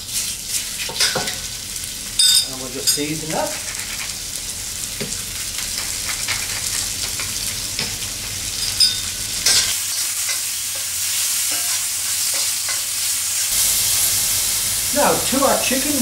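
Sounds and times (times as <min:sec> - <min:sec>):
chicken sizzling in hot oil: 0:00.0 - 0:16.0
sharp metal clinks: 0:02.2 - 0:03.1, 0:08.6 - 0:09.7
metal spoon scraping a pan: 0:02.8 - 0:04.2, 0:05.6 - 0:13.1.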